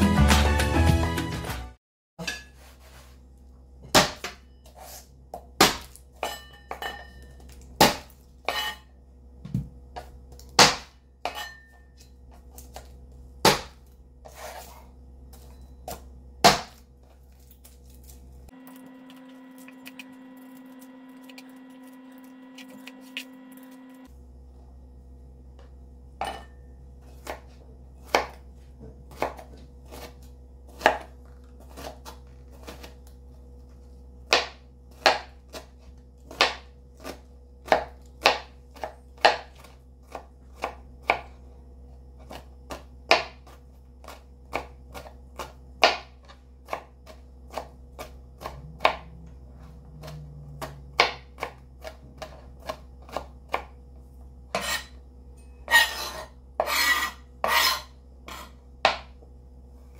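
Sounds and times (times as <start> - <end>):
knife chopping on cutting board: 9.5 - 11.6, 12.6 - 14.8, 15.9 - 16.8, 27.1 - 33.0, 34.3 - 41.4, 42.2 - 49.1, 50.0 - 53.8, 54.5 - 55.0, 55.7 - 59.1.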